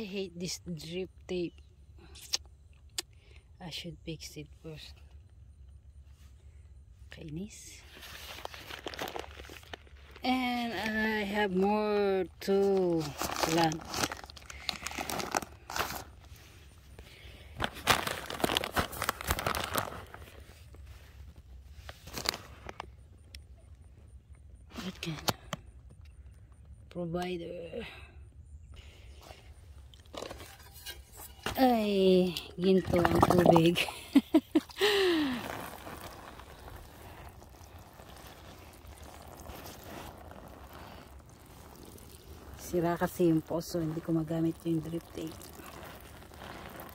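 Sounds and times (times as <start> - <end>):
paper bag crinkling: 7.9 - 10.2, 12.7 - 16.4, 17.6 - 20.9, 21.9 - 22.9, 34.8 - 44.0, 44.8 - 46.9
water pouring onto soil: 12.4 - 16.1, 32.3 - 46.9.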